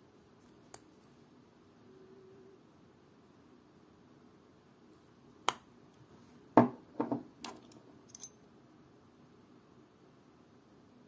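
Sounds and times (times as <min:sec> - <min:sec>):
knock: 0:06.6 - 0:07.2.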